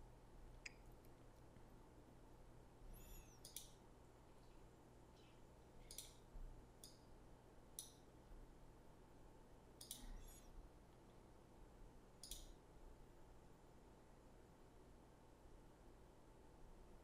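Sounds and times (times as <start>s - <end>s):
low steady hum: 0.0s - 17.0s
faint computer mouse clicks: 3.0s - 3.8s, 5.8s - 6.2s, 9.8s - 10.4s, 12.2s - 12.6s.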